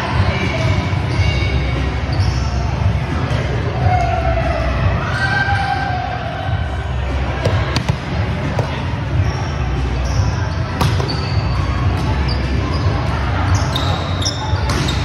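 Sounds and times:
low hum of large hall: 0.0s - 15.0s
sneaker squeaks: 1.0s - 2.8s, 8.6s - 15.0s
volleyball being hit and bouncing: 7.4s - 8.8s, 10.8s - 12.2s, 14.6s - 15.0s.

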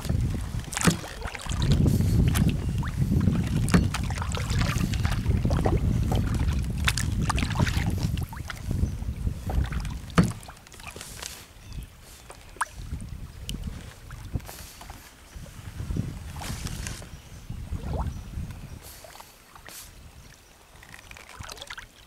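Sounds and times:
wind rumble on microphone: 0.0s - 10.6s, 11.6s - 19.1s, 19.7s - 21.6s
paddle knocks and splashes: 0.0s - 11.3s.

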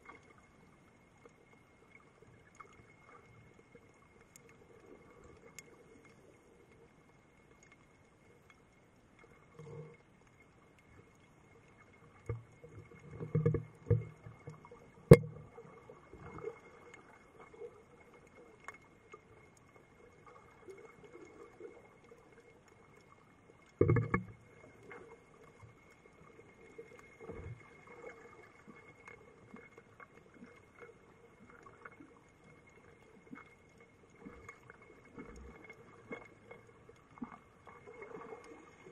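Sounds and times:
faint steady whine: 0.0s - 38.9s
muffled underwater knocks: 13.1s - 15.6s, 23.7s - 24.4s.

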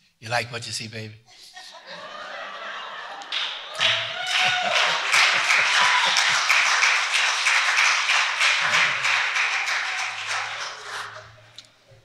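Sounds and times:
congregation clapping in rhythm: 3.1s - 11.6s.

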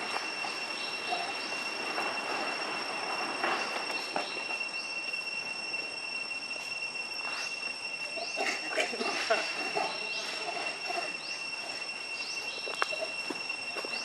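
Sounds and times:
short rising chirps: 0.0s - 8.4s
insects droning: 0.0s - 14.0s.

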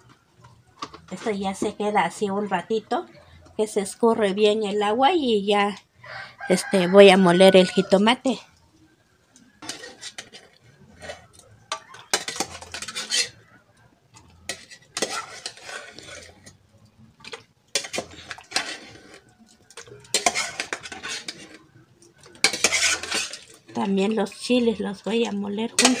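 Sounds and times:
metal spoon scraping a pot: 9.5s - 13.5s, 14.1s - 16.6s, 17.2s - 26.0s.

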